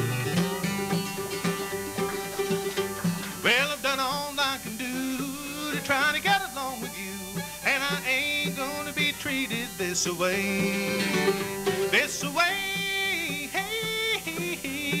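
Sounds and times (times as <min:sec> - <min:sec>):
upright bass: 0:00.0 - 0:06.3
fiddle: 0:00.0 - 0:15.0
strummed acoustic guitar: 0:00.0 - 0:15.0.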